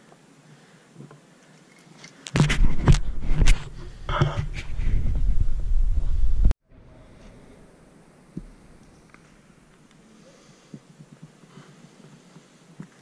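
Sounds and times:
microphone handling rumble: 2.3 - 6.6.

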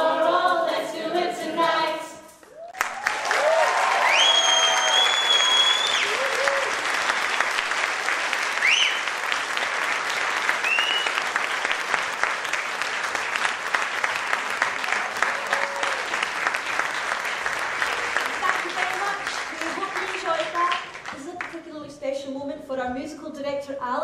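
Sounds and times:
audience applauding: 2.5 - 21.6
high whistles: 4.0 - 6.3, 8.6 - 9.2, 10.6 - 11.3.

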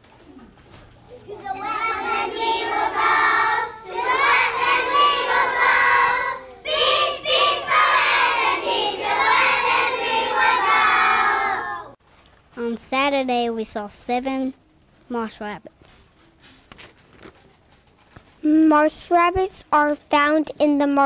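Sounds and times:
children singing together: 1.2 - 12.0.

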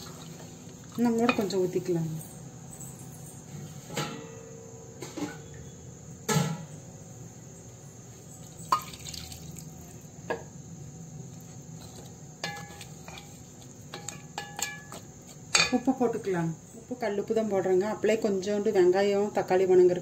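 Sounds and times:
water pouring into metal pot: 8.4 - 9.9
spatula knocking against pot: 13.9 - 15.8.

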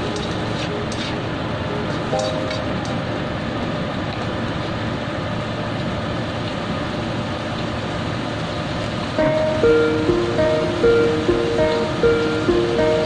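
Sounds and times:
plucked string music: 2.1 - 3.4, 9.2 - 13.0.

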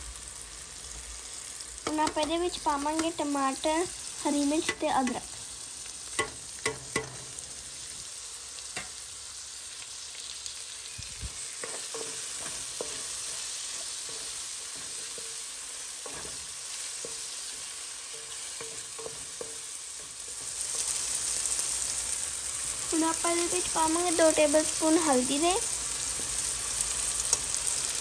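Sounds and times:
vegetables sizzling in oil: 0.0 - 28.0
spatula scraping and tapping pan: 1.8 - 3.2, 4.5 - 5.4, 6.1 - 8.0, 8.7 - 9.0, 11.5 - 21.2.

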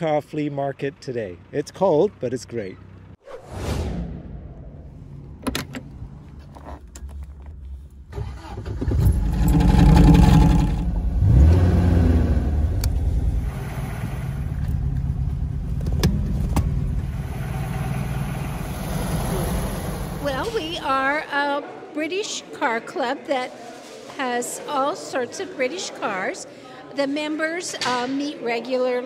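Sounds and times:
car engine starting and idling: 4.6 - 20.9
car door clicks: 5.4 - 6.0.

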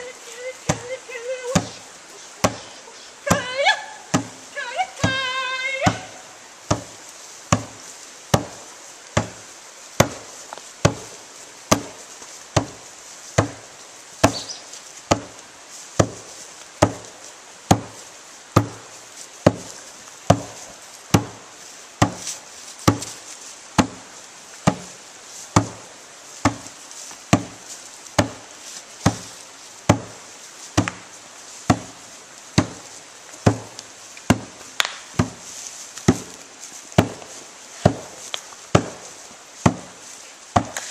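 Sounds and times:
log drum beaten by hand: 2.4 - 2.7, 4.1 - 8.6, 9.2 - 11.1, 11.7 - 12.0, 12.6 - 15.4, 16.0 - 18.0, 18.6 - 19.7, 20.3 - 21.4, 22.0 - 22.2, 22.8 - 23.2, 23.8 - 25.8, 26.4 - 26.7, 27.3 - 27.6, 28.2 - 29.3, 29.9 - 30.2, 31.7 - 32.0, 32.6 - 35.4, 37.0 - 40.0, 40.6 - 40.8.

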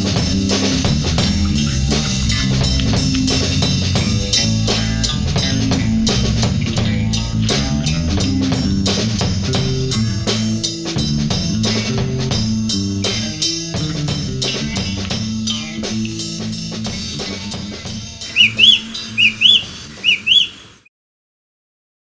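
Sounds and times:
rock music: 0.0 - 20.4
bird piping calls: 18.3 - 20.9.

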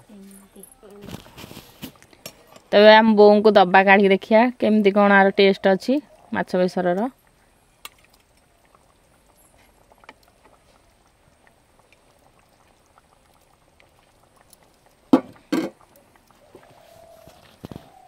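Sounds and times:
gravy pouring and dripping: 4.7 - 18.0.

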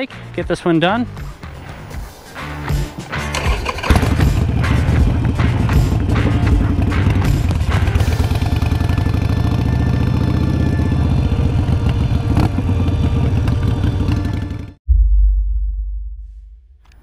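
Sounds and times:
motorcycle engine running: 3.3 - 14.8.

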